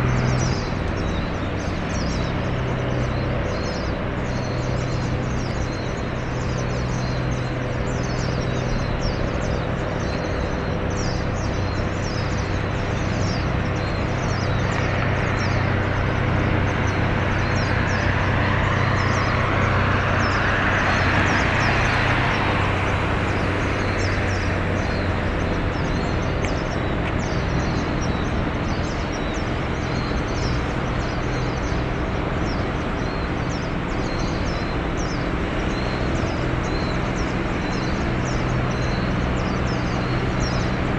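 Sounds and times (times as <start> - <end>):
low engine hum: 0.0 - 40.9
vehicle passing: 12.6 - 34.0.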